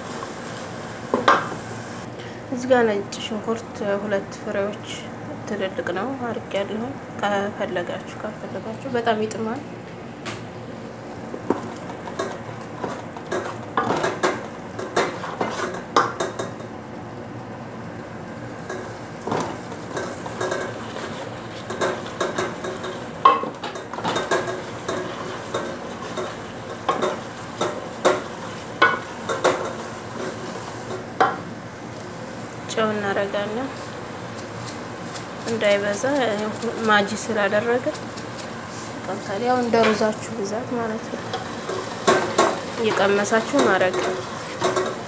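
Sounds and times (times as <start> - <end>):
wooden spoon scraping pot: 11.4 - 16.0.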